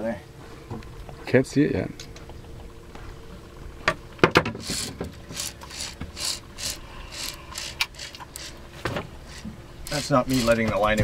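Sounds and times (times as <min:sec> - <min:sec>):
fishing reel drag buzzing: 0:04.6 - 0:10.6.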